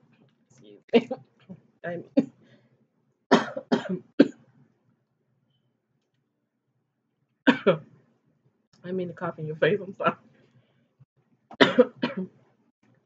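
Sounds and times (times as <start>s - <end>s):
woman coughing: 3.3s - 4.4s, 7.5s - 7.8s, 11.6s - 12.3s.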